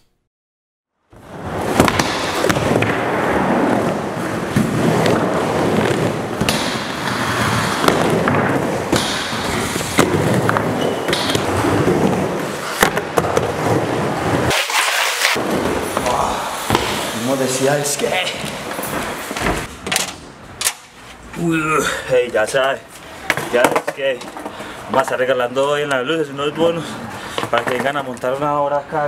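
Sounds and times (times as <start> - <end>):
skateboard wheels rolling: 1.2 - 19.8.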